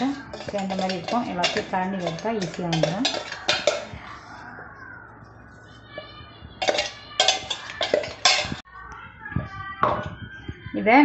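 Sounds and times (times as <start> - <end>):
metal spoon scraping steel jar: 0.0 - 4.0, 6.6 - 8.6.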